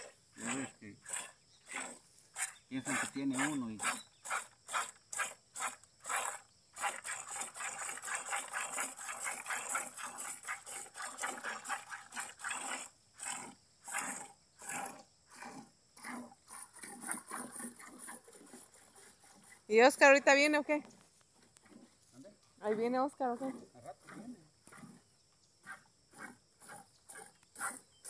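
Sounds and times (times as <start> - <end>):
milk squirting into bucket: 0.0 - 15.0.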